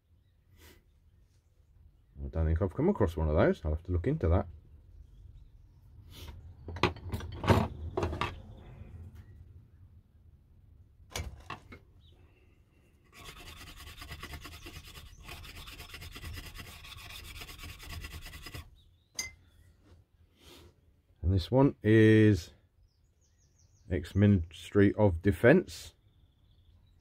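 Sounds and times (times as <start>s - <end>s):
scrubbing on steel blade: 13.0s - 18.8s.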